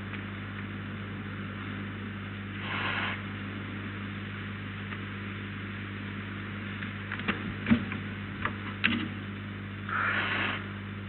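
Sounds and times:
constant hiss: 0:00.0 - 0:11.0
steady electrical hum: 0:00.0 - 0:11.0
short breathy hiss: 0:02.6 - 0:03.3, 0:09.9 - 0:10.7.

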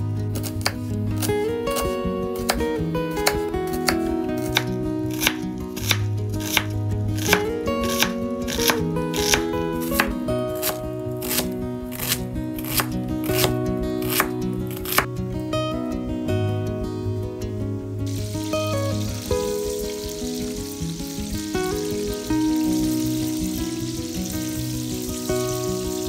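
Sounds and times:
background music: 0:00.0 - 0:26.0
knife chopping onion on wooden board: 0:00.4 - 0:02.6, 0:03.2 - 0:15.1.

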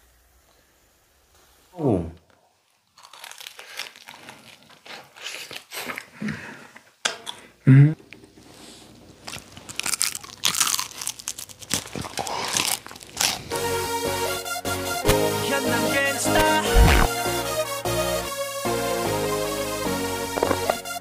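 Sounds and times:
crunchy chewing and biting: 0:02.8 - 0:06.2, 0:09.1 - 0:13.7, 0:16.7 - 0:17.1, 0:20.3 - 0:21.0
brief loud vocal sound: 0:16.3 - 0:17.1.

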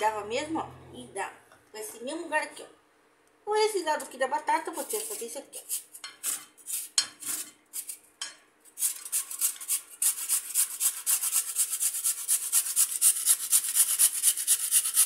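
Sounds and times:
potato rasping on metal grater: 0:04.7 - 0:08.0, 0:08.8 - 0:15.0.

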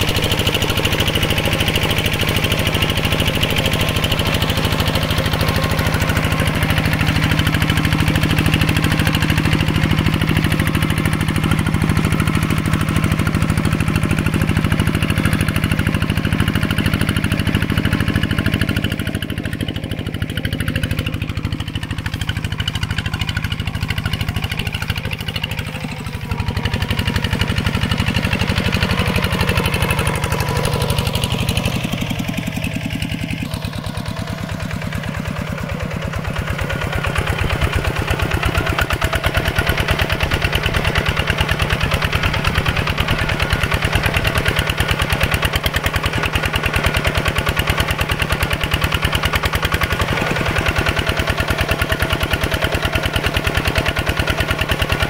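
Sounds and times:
tractor engine running: 0:00.0 - 0:55.0.

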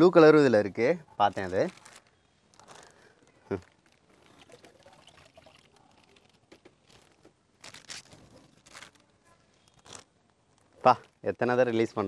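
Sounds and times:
water trickling and splashing: 0:03.8 - 0:07.2.

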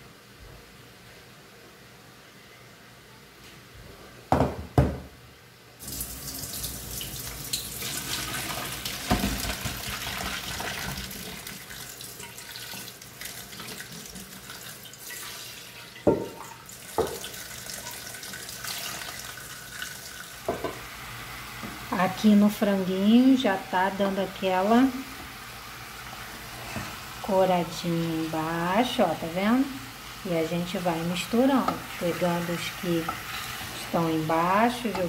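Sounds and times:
water pouring into sink: 0:05.8 - 0:20.4.

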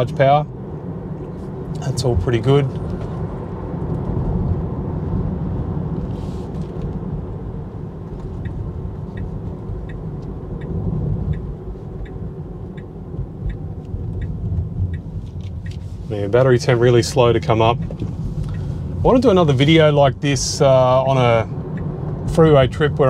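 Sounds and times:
road and tyre rumble: 0:00.0 - 0:23.0
light regular ticking: 0:08.1 - 0:23.0.

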